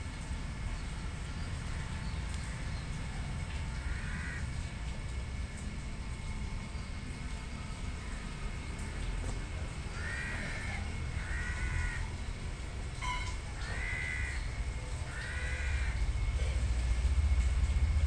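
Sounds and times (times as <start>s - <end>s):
low steady rumble: 0.0s - 18.0s
crow cawing: 3.9s - 4.6s, 9.9s - 12.3s, 13.0s - 16.0s.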